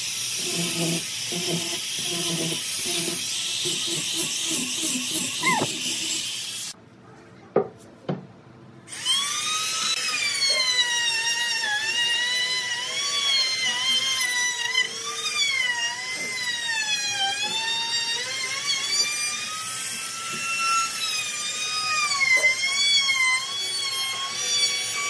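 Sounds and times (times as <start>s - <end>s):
angle grinder sanding wood: 0.0s - 6.8s.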